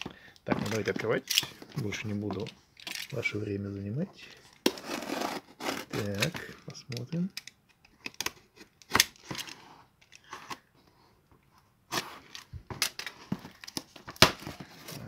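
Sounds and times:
cardboard box scraping: 4.7 - 6.2.

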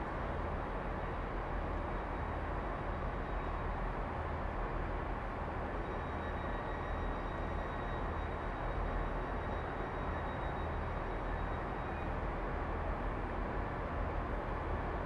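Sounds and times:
diesel locomotive rumbling: 0.0 - 15.0
faint high whine: 5.6 - 13.4.

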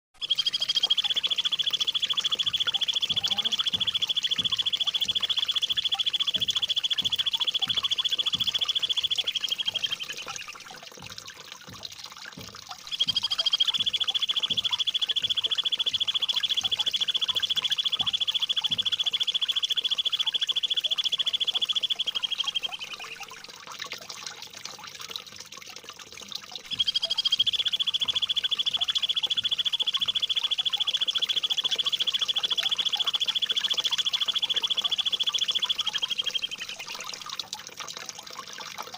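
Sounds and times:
songbird rapid trill: 0.2 - 10.8, 12.8 - 23.4, 26.7 - 37.4
water trickling: 0.2 - 38.9.

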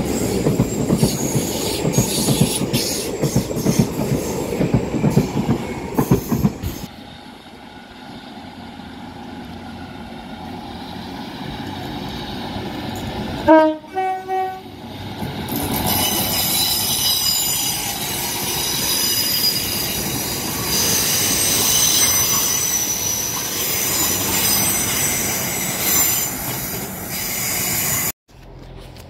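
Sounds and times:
train wheels squealing: 0.0 - 7.2, 15.5 - 28.1
rolling rail noise: 0.0 - 29.0
train horn: 13.4 - 14.7.

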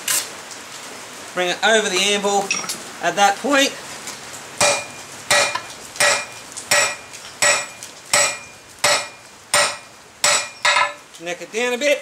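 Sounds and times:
hammer striking steel on anvil: 4.6 - 11.0.

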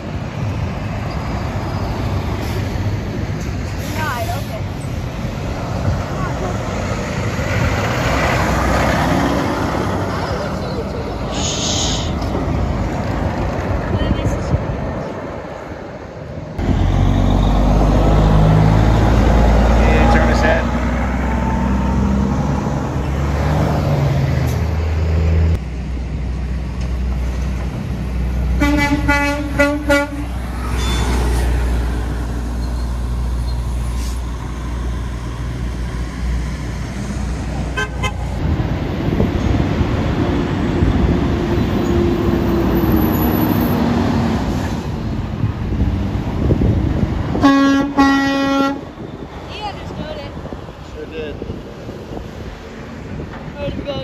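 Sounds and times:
diesel truck engines rumbling: 0.0 - 54.0
truck horn: 28.6 - 31.2, 37.7 - 38.4, 47.4 - 48.9.

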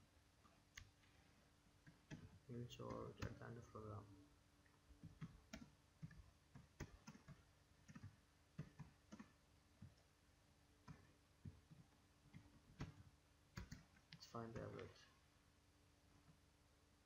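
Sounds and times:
faint keyboard typing clicks: 1.8 - 3.6, 5.0 - 10.0, 10.8 - 15.1.

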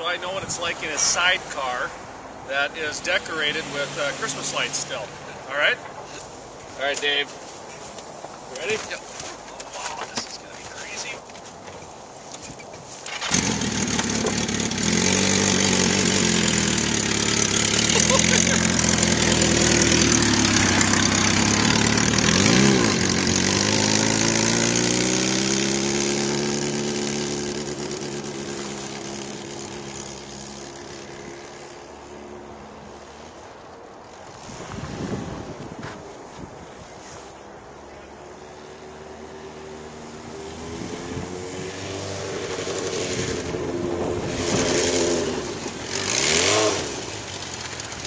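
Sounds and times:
motorcycle engine starting and running: 12.4 - 33.5, 38.4 - 48.0.

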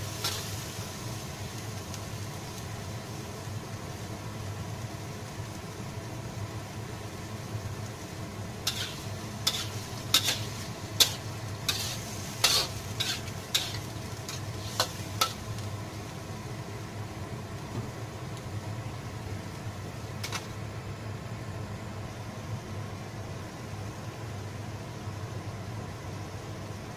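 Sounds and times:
food sizzling: 0.0 - 26.9
metal spatula scraping a wok: 0.1 - 0.8, 8.6 - 15.7, 20.2 - 20.5.

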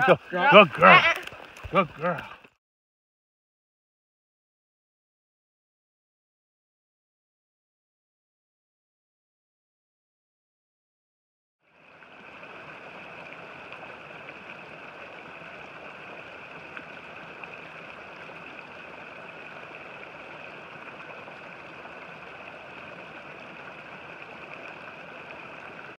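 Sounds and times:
stream over small waterfall: 0.0 - 2.6, 11.6 - 25.9.

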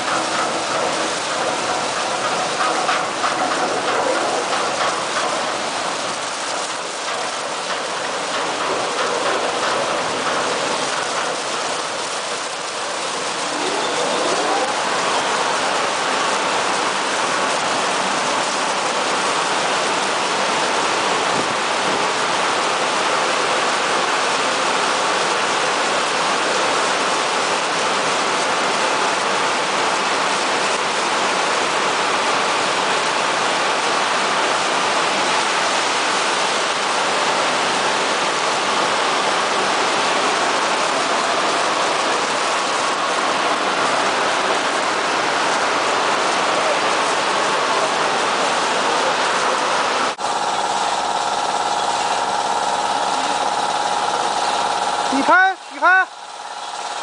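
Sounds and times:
rotating car wash brushes: 0.0 - 15.6
car wash water jets spraying: 0.0 - 57.0.

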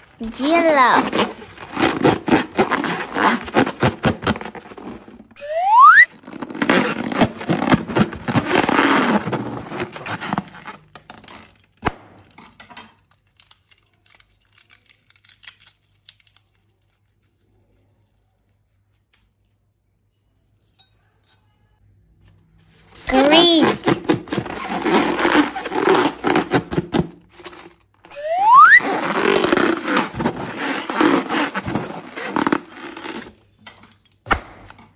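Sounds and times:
crinkling scraping of balloons: 0.0 - 5.4, 6.1 - 11.6, 22.7 - 27.6, 28.5 - 33.4
rising squeak: 5.4 - 6.1, 28.1 - 30.0.

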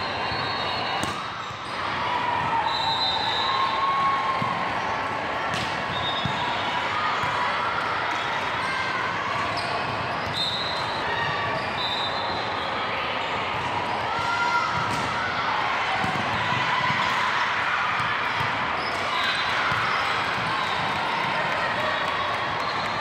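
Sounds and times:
sneakers squeaking: 0.0 - 3.6, 4.3 - 7.4, 8.1 - 15.1, 18.0 - 21.0.

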